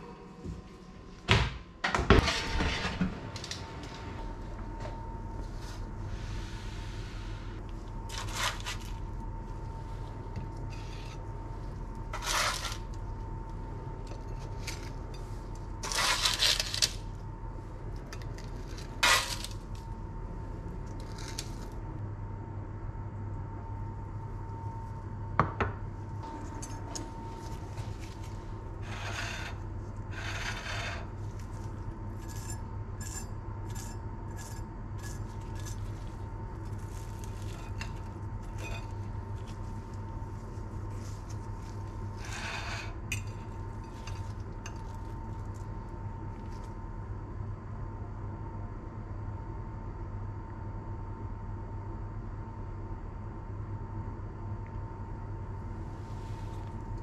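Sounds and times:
steady low hum: 0.0 - 57.0
spatula scraping baking tray: 12.1 - 12.9, 14.6 - 17.0, 28.8 - 31.6, 40.8 - 44.8.

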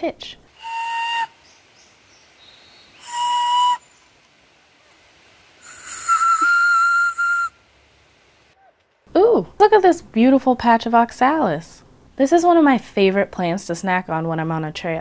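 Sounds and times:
breathy flute whistle: 0.6 - 1.5, 3.0 - 4.0, 5.6 - 7.6.

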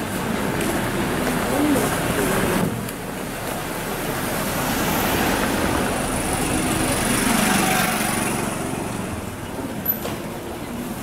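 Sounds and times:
motor scooter passing: 4.1 - 9.3.

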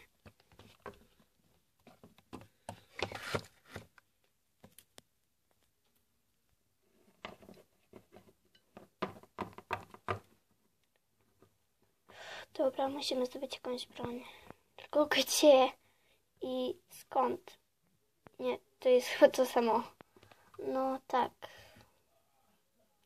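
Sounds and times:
plastic toys tapping on wood: 7.2 - 10.4.

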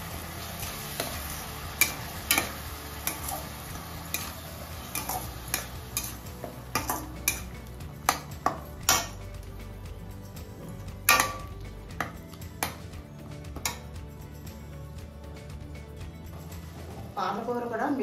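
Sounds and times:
spatula scraping metal pan: 0.9 - 7.5.

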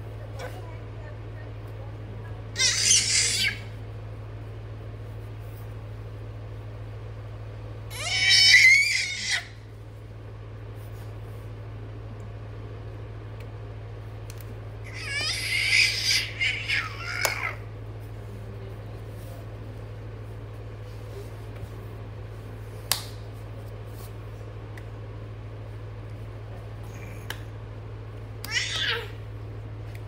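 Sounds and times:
steady low hum: 0.0 - 30.0
baby squealing: 2.6 - 3.7, 7.9 - 9.5, 14.9 - 17.6.

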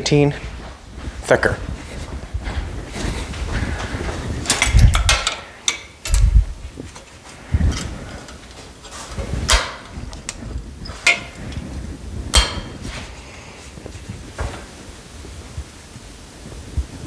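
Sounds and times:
metal clanks and knocks: 4.4 - 11.7, 12.3 - 13.1.

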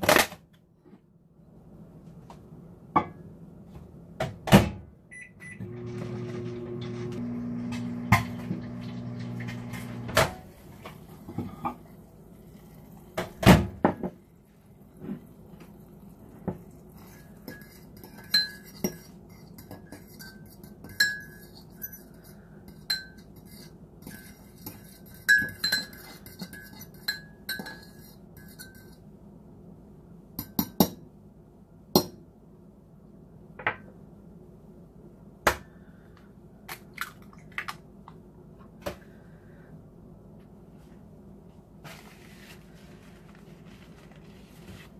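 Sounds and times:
microwave oven hum: 4.2 - 16.5
fork scraping ceramic mug: 16.7 - 29.0.

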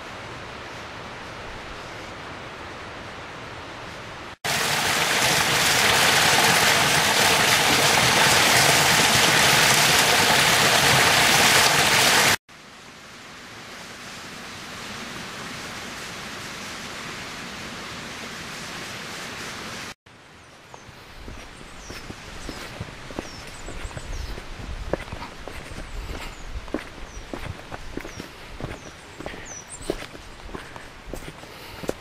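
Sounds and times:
waterfall rushing: 4.5 - 12.4
soft stream flowing: 19.6 - 32.0.

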